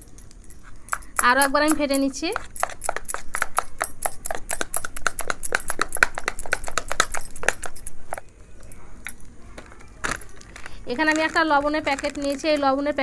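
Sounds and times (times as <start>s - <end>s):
spoon beating batter in bowl: 0.6s - 8.3s.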